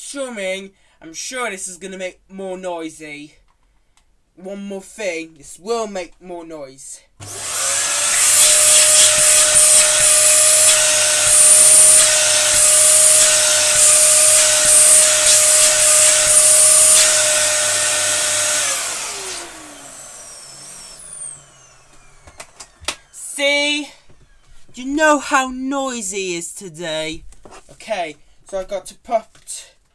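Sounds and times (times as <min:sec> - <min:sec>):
vacuum cleaner motor whining: 0:07.2 - 0:24.7.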